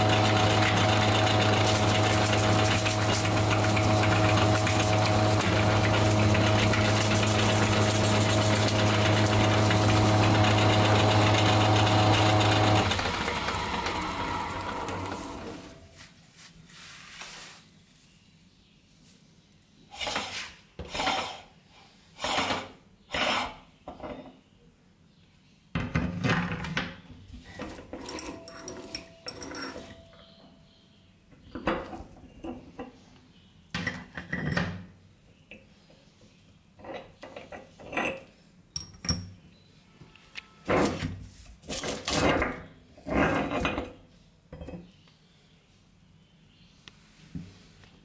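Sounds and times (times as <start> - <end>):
meat grinder cranking: 0.0 - 15.8
metal parts clinking and scraping: 27.5 - 30.3.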